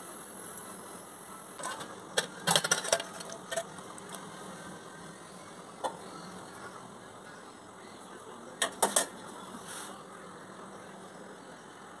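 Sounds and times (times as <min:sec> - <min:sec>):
toast crackling: 0:01.5 - 0:05.1
steel plate clicking: 0:01.6 - 0:04.2.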